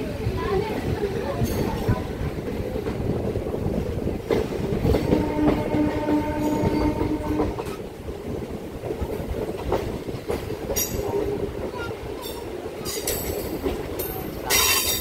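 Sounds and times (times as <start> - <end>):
train wheels clickety-clack: 0.2 - 15.0
train horn: 5.0 - 7.7.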